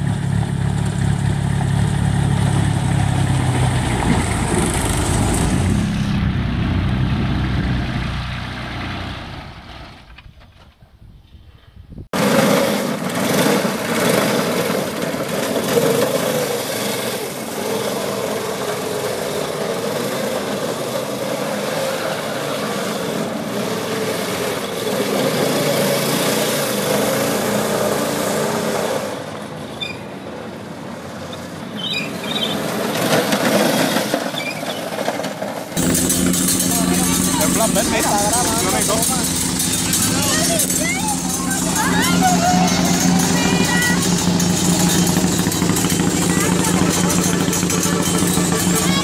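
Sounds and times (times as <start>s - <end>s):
small gasoline engine running: 12.2s - 29.1s, 35.0s - 49.0s.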